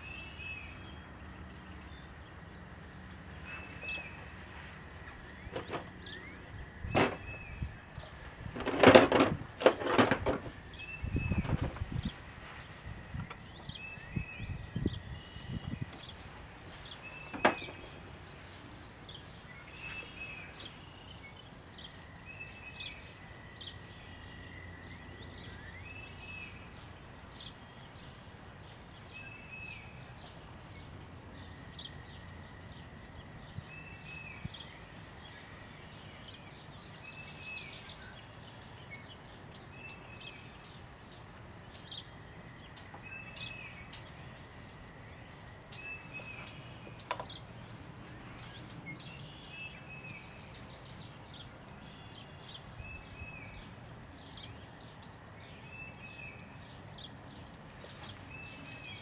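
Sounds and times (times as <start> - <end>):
birds chirping and whistling: 0.0 - 28.1, 41.6 - 54.6.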